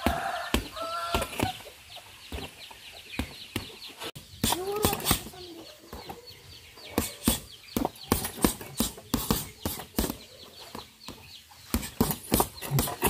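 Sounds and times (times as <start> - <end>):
gloves punching heavy bag: 7.0 - 10.2, 11.7 - 13.0.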